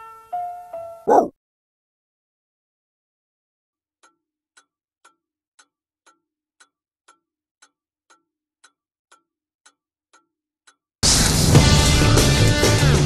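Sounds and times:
loud rock music: 0:11.0 - 0:13.0.

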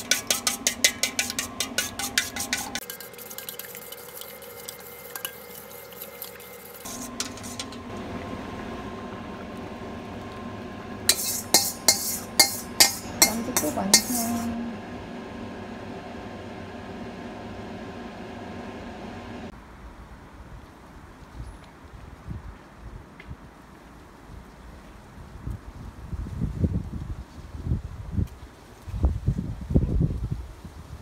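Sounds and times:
metal spoon clinking on steel bowl: 0:00.0 - 0:03.7, 0:11.1 - 0:14.5.

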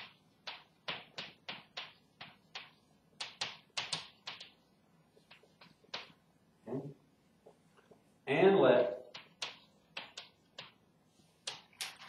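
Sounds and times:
chalk tapping on blackboard: 0:00.0 - 0:06.2, 0:09.1 - 0:10.8.

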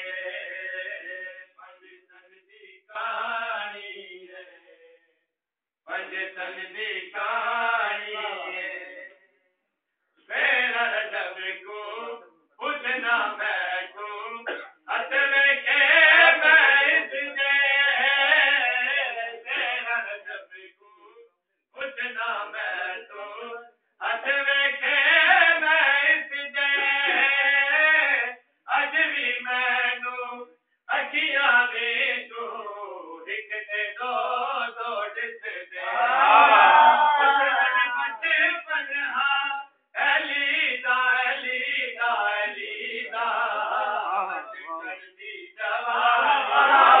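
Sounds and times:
man chanting devotional verses: 0:00.0 - 0:04.9, 0:05.9 - 0:09.1, 0:10.3 - 0:21.2, 0:21.8 - 0:35.9, 0:37.2 - 0:47.0
men chanting together: 0:12.6 - 0:19.9, 0:24.0 - 0:28.0, 0:34.7 - 0:38.9, 0:40.0 - 0:47.0.

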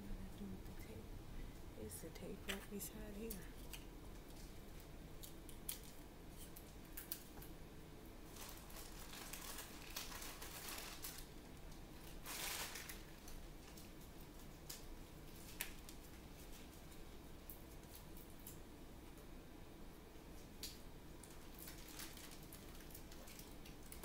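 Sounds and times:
wrapping crinkling: 0:03.5 - 0:07.4, 0:08.3 - 0:18.6, 0:20.3 - 0:24.0.

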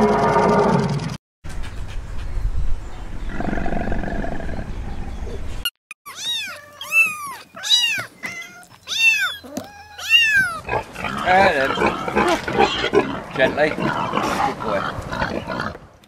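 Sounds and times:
kitten meowing: 0:06.1 - 0:10.6.

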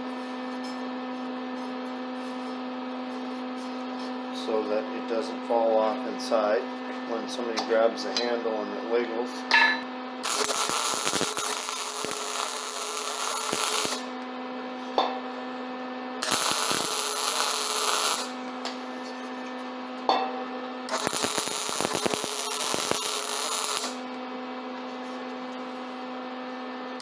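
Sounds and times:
steady electrical hum: 0:00.0 - 0:27.0
welding arc crackling: 0:10.2 - 0:14.1, 0:16.2 - 0:18.4, 0:20.9 - 0:24.1.

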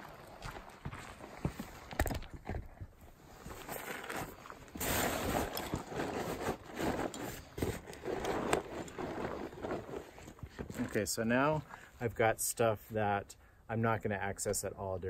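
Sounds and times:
fabric rustling and crinkling: 0:03.0 - 0:11.8.

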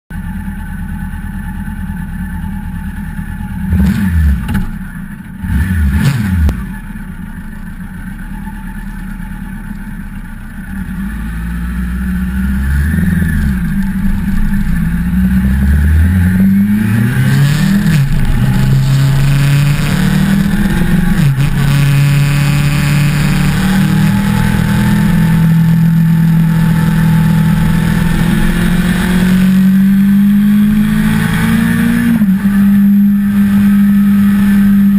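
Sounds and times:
motorcycle engine revving and accelerating: 0:02.8 - 0:07.4, 0:10.6 - 0:34.9.

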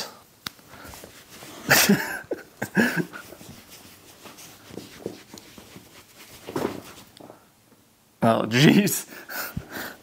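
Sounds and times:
hands rubbing dog's coat: 0:00.8 - 0:01.9, 0:03.0 - 0:07.2.

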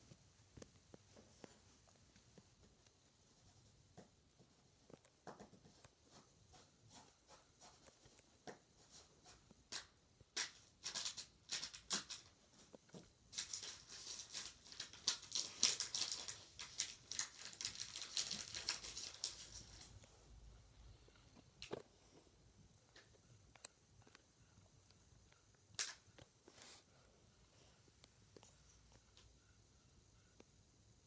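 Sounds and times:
pencil scratching on paper: 0:05.5 - 0:09.6.

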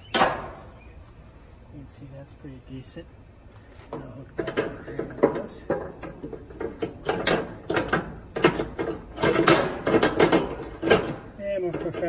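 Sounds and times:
wire rack rattling and clinking: 0:04.4 - 0:12.0.

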